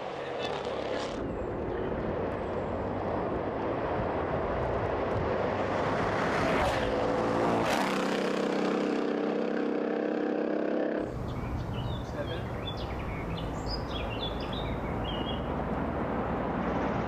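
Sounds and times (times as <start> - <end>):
race car engines at high revs: 0.0 - 1.3, 2.3 - 9.7.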